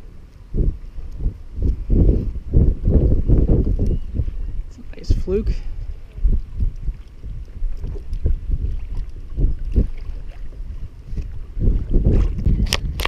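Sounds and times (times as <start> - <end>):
wind buffeting the microphone: 0.0 - 13.0
water slapping against a hull: 5.8 - 13.0.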